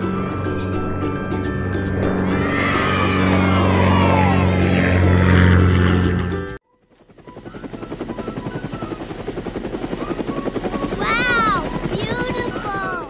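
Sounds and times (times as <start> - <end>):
rising and falling pitched sounds: 0.0 - 6.6
cartoon helicopter rotor chop: 0.0 - 13.0.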